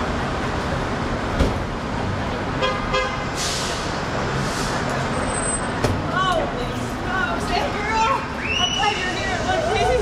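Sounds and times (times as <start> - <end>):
traffic rumble: 0.0 - 10.0
vehicle horn toots: 2.6 - 3.3.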